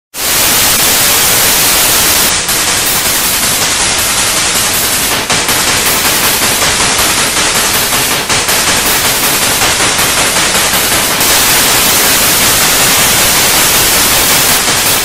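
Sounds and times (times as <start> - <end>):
tv static hiss fluttering: 0.2 - 15.0.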